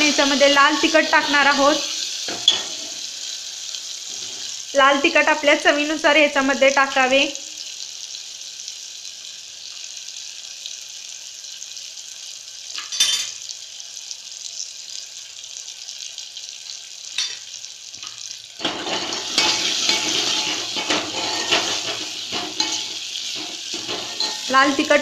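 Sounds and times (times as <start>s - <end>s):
oil sizzling in a pot: 0.0s - 25.0s
metal spoon scraping pot: 18.6s - 24.5s.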